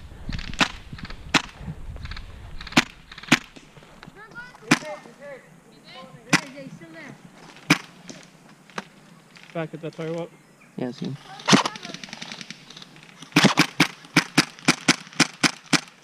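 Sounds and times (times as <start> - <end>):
airsoft rifle shots: 0.4 - 3.7, 4.6 - 5.1, 6.3 - 6.7, 7.6 - 9.6, 11.4 - 16.0.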